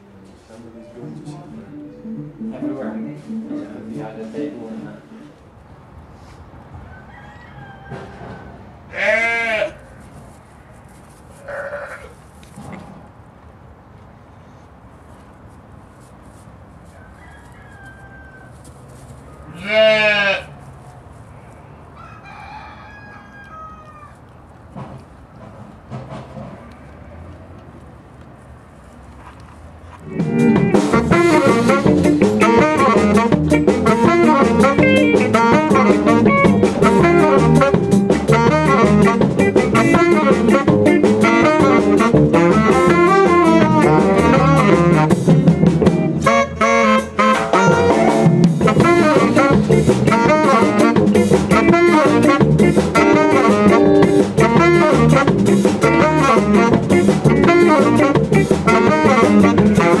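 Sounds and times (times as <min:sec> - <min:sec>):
jazz band playing: 0:00.3 - 0:05.4, 0:30.0 - 1:00.0.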